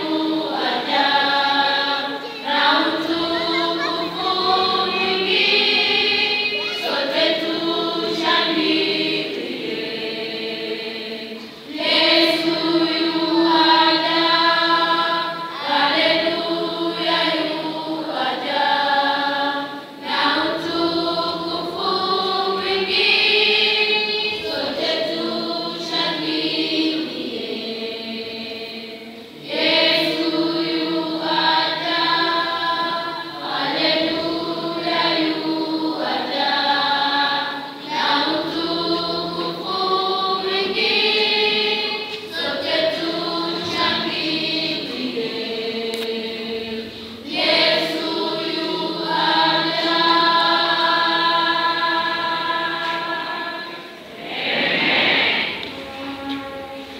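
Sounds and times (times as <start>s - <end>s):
children's choir singing: 0.0s - 56.9s.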